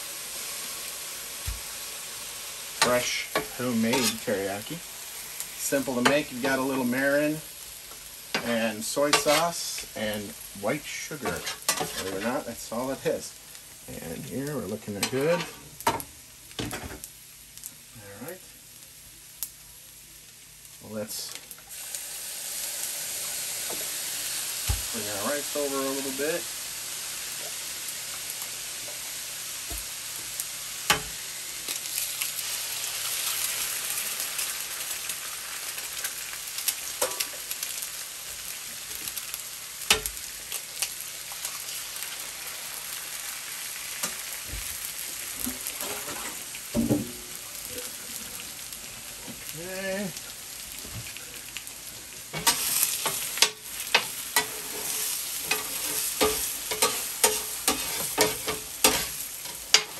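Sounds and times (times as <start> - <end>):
food sizzling on a griddle: 0.0 - 59.9
metal spatula scraping griddle: 2.8 - 4.5, 8.4 - 9.7, 11.2 - 12.4, 45.4 - 46.4, 52.4 - 59.9.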